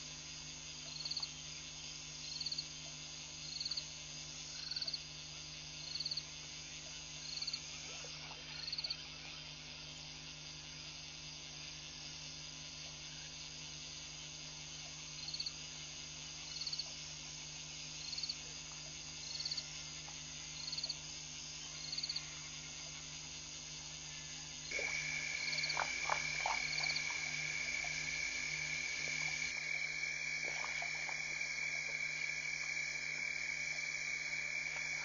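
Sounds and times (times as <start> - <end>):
insect hum: 0.0 - 35.0
rattling frog call: 24.7 - 35.0.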